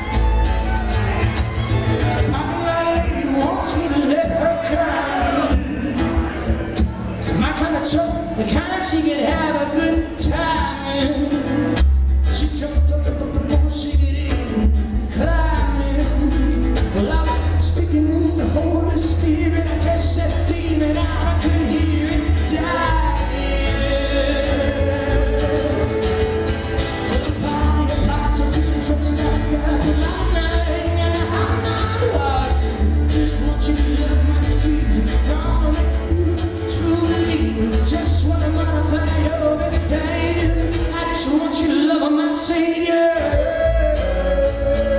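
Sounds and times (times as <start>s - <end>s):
fiddle: 0.0s - 3.3s
strummed acoustic guitar: 0.0s - 44.9s
upright bass: 0.0s - 44.9s.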